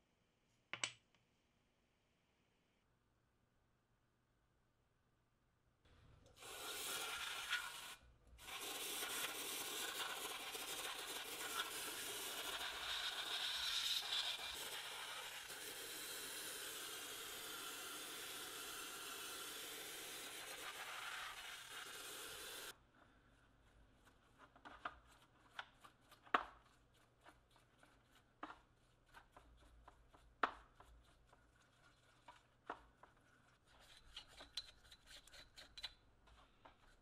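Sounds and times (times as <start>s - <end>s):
aerosol spray can hissing: 6.4s - 22.7s.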